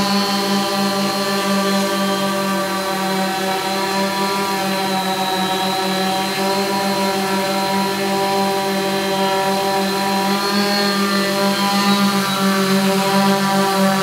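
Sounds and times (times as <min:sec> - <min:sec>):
drone propellers droning buzz: 0:00.0 - 0:14.0.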